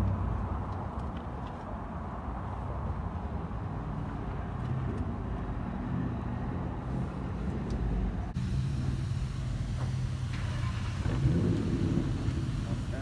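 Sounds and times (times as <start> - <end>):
vehicle engine idling: 8.2 - 13.0.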